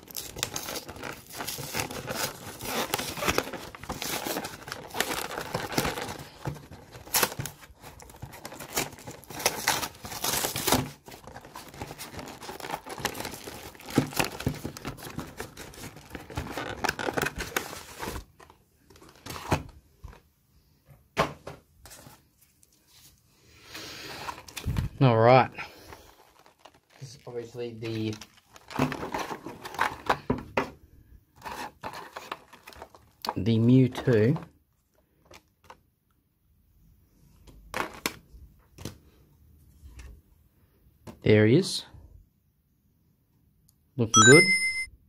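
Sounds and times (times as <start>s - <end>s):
plastic wrapping crinkling and tearing: 0.0s - 19.7s, 25.8s - 30.2s, 31.4s - 34.4s.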